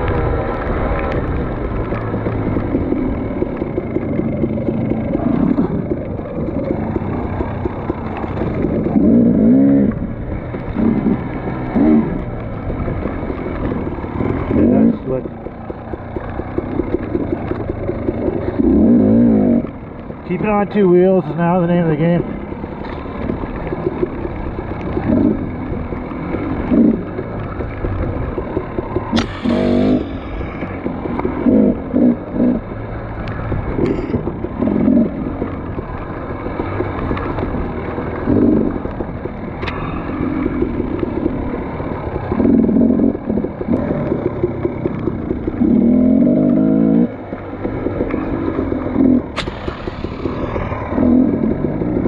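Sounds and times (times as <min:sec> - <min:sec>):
dirt bike engine revving: 0:00.0 - 0:52.0.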